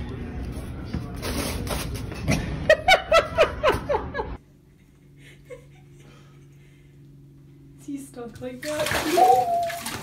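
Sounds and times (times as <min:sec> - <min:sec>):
low steady hum: 0:00.0 - 0:10.0
person laughing: 0:02.7 - 0:06.9.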